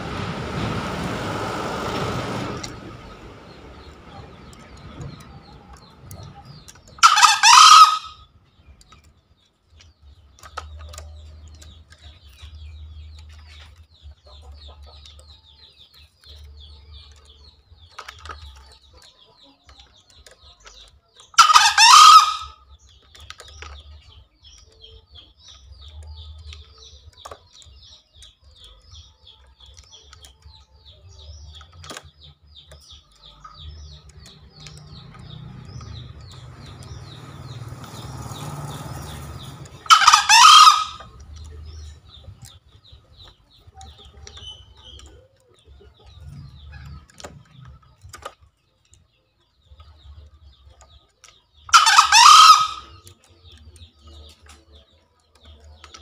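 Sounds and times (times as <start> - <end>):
rooster crowing: 7.0 - 8.2, 21.4 - 22.5, 39.8 - 41.0, 51.7 - 52.8.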